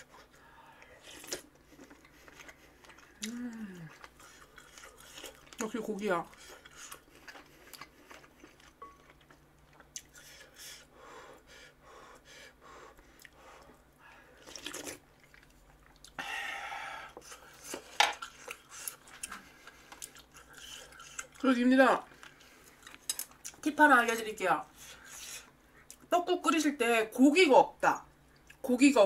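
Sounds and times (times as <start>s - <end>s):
chewing meat: 0.0s - 10.6s, 12.9s - 16.2s, 17.1s - 23.7s.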